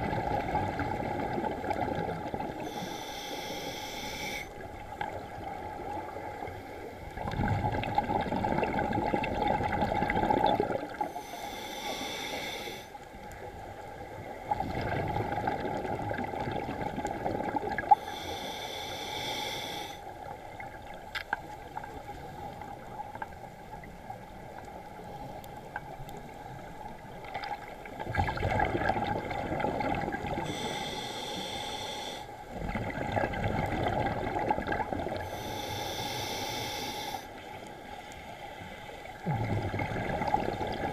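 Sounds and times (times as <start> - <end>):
regulator hissing inhale: 2.6 - 4.6, 11.1 - 13.0, 17.9 - 20.1, 30.4 - 32.4, 35.2 - 39.1
bubbling exhale underwater: 7.2 - 11.2, 14.5 - 18.0, 28.0 - 30.6, 32.6 - 35.4, 39.2 - 40.9.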